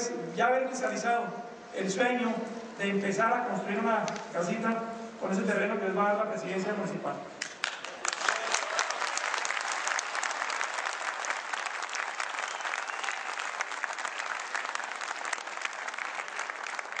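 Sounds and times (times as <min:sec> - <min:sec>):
audience applauding: 0:07.4 - 0:17.0.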